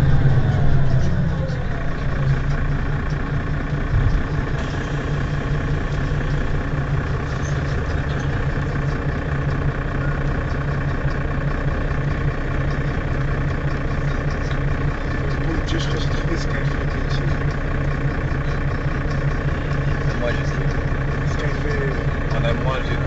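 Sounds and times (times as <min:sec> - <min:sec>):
bus engine idling: 0:00.0 - 0:23.0.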